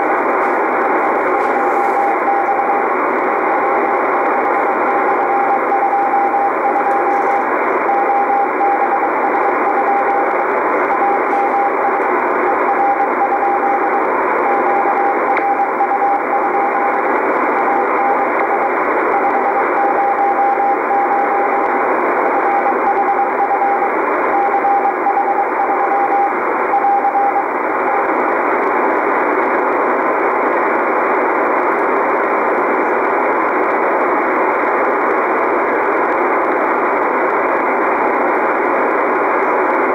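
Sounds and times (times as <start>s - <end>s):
morse code tone: 0.0s - 28.2s
radio band hiss: 0.0s - 39.9s.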